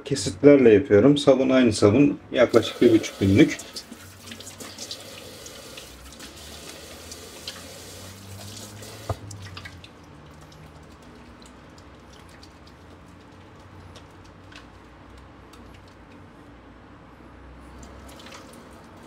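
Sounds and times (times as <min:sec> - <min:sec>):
water splashes and drips: 0:02.5 - 0:16.1, 0:17.7 - 0:19.0
hands lathering soap: 0:02.5 - 0:16.3, 0:17.7 - 0:19.0
tap running into steel sink: 0:08.8 - 0:09.3.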